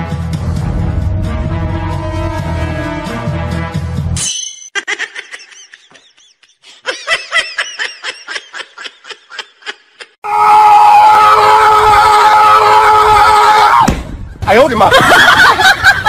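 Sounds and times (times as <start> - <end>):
background music: 0.0 - 4.4
high-pitched giggling: 4.7 - 10.2.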